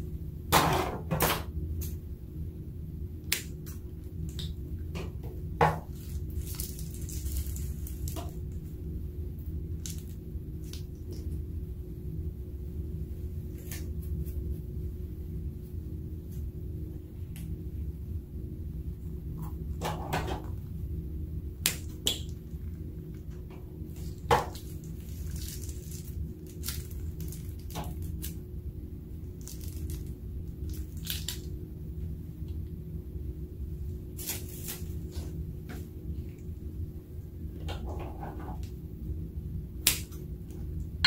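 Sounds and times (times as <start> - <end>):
low hum: 0.0 - 41.0
piping bag crinkling and squelching: 5.4 - 11.4, 21.5 - 31.7, 34.0 - 36.5.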